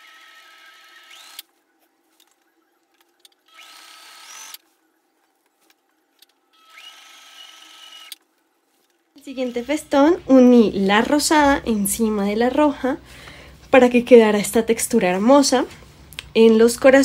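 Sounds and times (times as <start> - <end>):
sewing machine motor whine: 0.0 - 1.6, 3.4 - 4.6, 6.5 - 8.2, 9.2 - 10.2.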